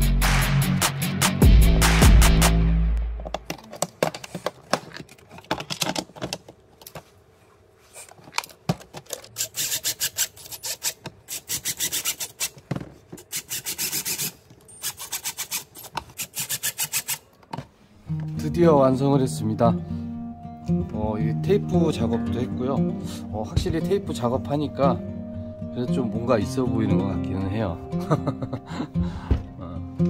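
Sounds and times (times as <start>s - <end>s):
powered screwdriver driving screws: 9.1s - 12.6s, 13.2s - 17.2s.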